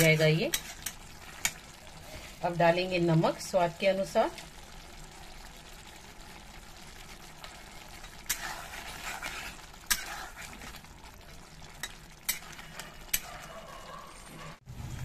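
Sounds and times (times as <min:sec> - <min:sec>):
spatula scraping metal pan: 0:00.0 - 0:02.4, 0:08.0 - 0:10.8
low sizzle: 0:00.0 - 0:15.0.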